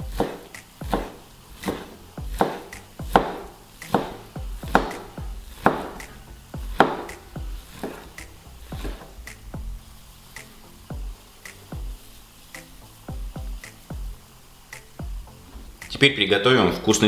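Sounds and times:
knife slicing on cutting board: 0:00.1 - 0:09.1
blade knocking on plastic board: 0:02.4 - 0:06.1.

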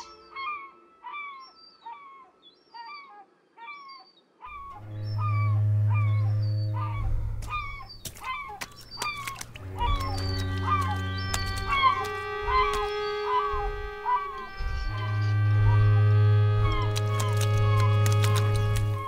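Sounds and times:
steady low hum: 0:09.5 - 0:19.0
sharp crackling clicks: 0:16.6 - 0:19.0.

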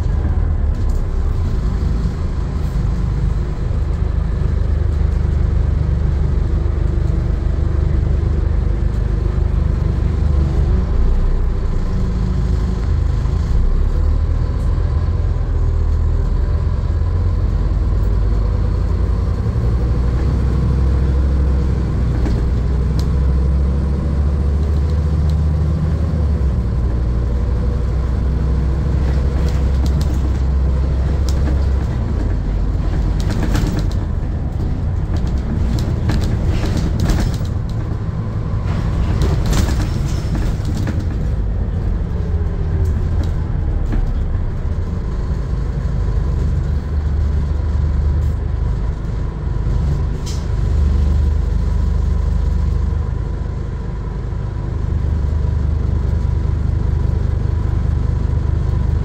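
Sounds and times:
bus diesel engine drone: 0:00.0 - 0:59.0
road noise: 0:00.0 - 0:59.0
interior rattles and clicks: 0:28.7 - 0:50.8.

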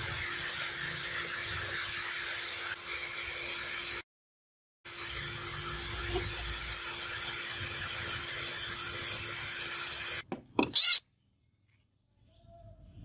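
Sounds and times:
steel bar scraping plastic: 0:10.6 - 0:11.0.

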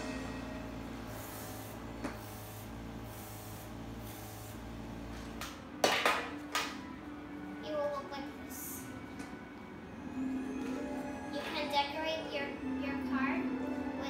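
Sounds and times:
hissing puffs of air sprayer: 0:01.0 - 0:04.8.

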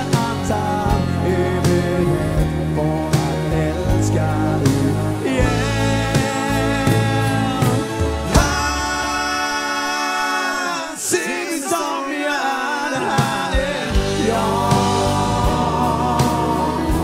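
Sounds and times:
pop song with band: 0:00.0 - 0:17.0.

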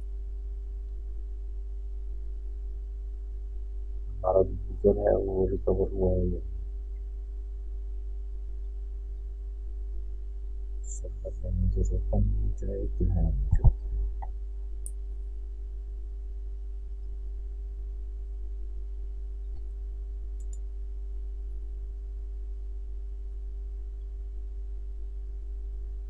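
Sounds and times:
faint steady tones: 0:00.0 - 0:26.0
low electrical hum: 0:00.0 - 0:26.0
brief voice: 0:04.2 - 0:06.4, 0:10.9 - 0:13.8
light clicks: 0:20.4 - 0:20.7.

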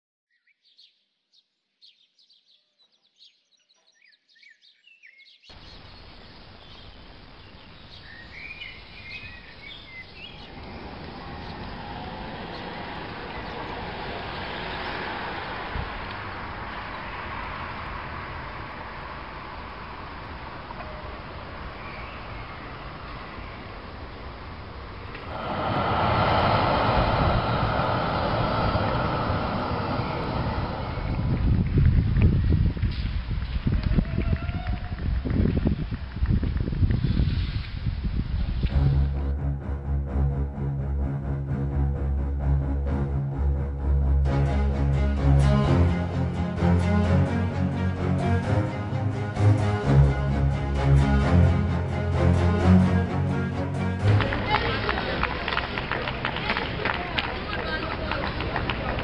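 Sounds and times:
birds singing: 0:00.3 - 0:15.0, 0:20.9 - 0:23.8
quiet street ambience: 0:05.4 - 0:39.2, 0:52.7 - 0:59.0
bicycle road noise: 0:05.6 - 0:39.2, 0:54.0 - 0:59.0
wind rushing: 0:10.0 - 0:21.7, 0:24.6 - 0:55.6
tram running along track: 0:10.1 - 0:34.0, 0:40.6 - 0:59.0.

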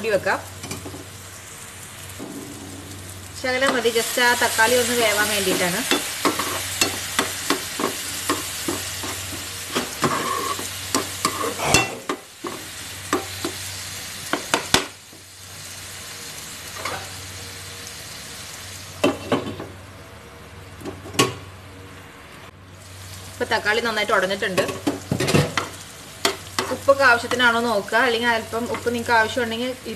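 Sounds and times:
masala sizzling in frying pan: 0:00.0 - 0:19.9, 0:22.5 - 0:29.9
spatula scraping pan: 0:05.4 - 0:12.6.

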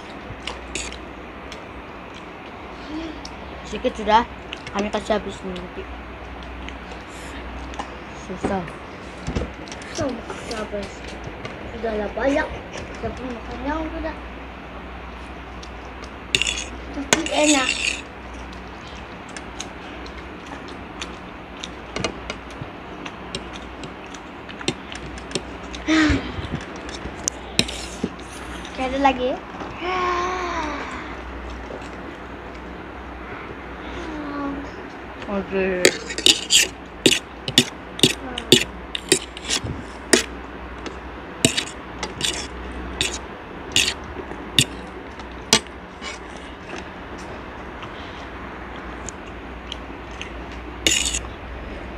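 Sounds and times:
low background hum: 0:00.0 - 0:51.9
forks clicking on a plate: 0:41.4 - 0:44.0.

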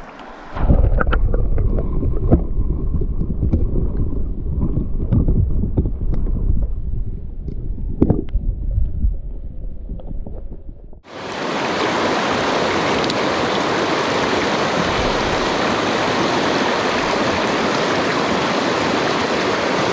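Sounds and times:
creek rushing: 0:00.0 - 0:00.8, 0:11.1 - 0:19.9
wind buffeting microphone: 0:00.0 - 0:11.1, 0:14.0 - 0:18.6.

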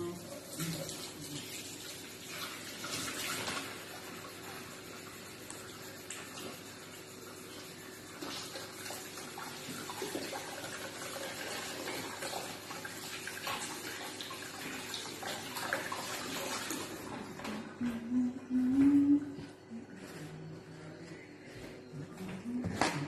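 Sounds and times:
tap water running into sink: 0:08.2 - 0:17.6.

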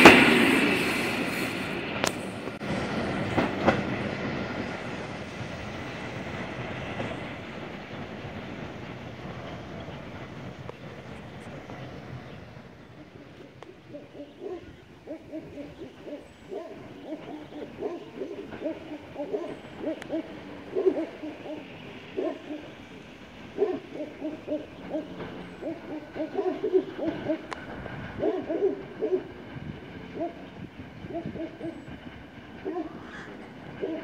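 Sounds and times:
pigeons cooing: 0:13.0 - 0:22.8, 0:23.5 - 0:27.6, 0:32.6 - 0:34.0.

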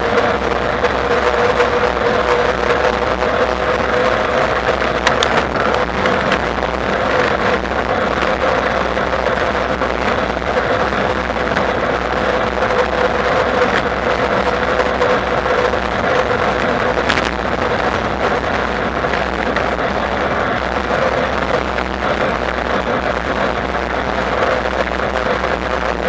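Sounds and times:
wind rushing: 0:00.0 - 0:26.0.

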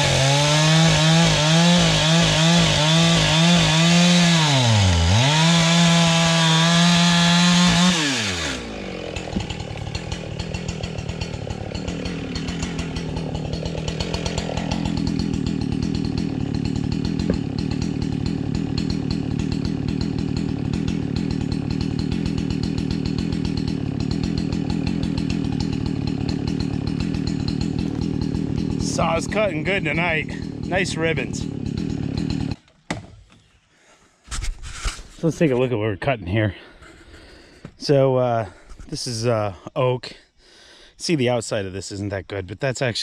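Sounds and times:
chainsaw cutting log: 0:00.0 - 0:33.4.

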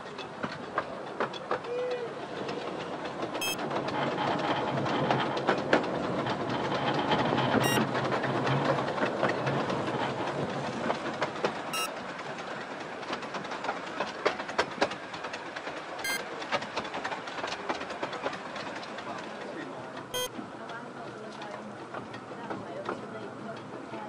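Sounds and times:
steam train rumble: 0:00.0 - 0:24.0
wheel clicks over rail joints: 0:00.0 - 0:24.0.

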